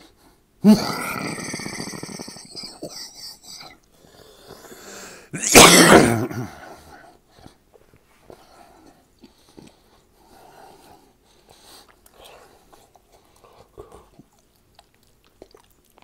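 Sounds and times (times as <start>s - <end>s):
man coughing loudly: 5.4s - 6.6s
chewing and mouth sounds: 11.5s - 16.0s.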